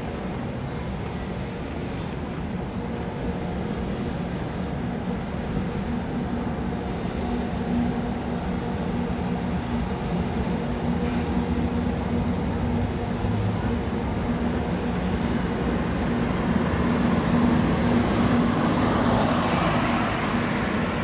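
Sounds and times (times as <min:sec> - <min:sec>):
electric locomotive humming: 0:00.0 - 0:21.0
wheels rumbling on rail: 0:00.0 - 0:21.0.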